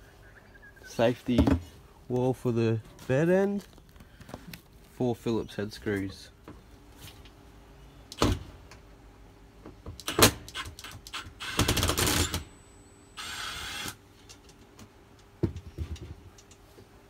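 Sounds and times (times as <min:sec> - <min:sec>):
cordless drill whirring: 0:13.2 - 0:14.0.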